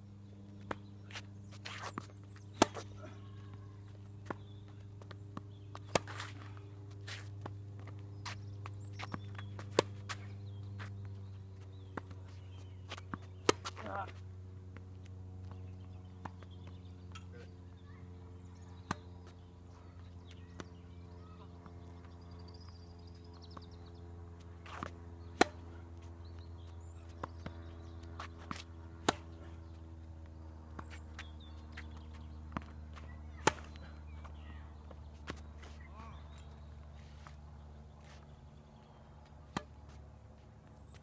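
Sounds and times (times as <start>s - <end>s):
steady low hum: 0.0s - 41.0s
rackets striking tennis ball: 0.6s - 3.3s, 4.2s - 11.0s, 11.8s - 14.0s, 15.5s - 17.5s, 18.8s - 20.8s, 24.6s - 36.6s, 39.1s - 40.0s.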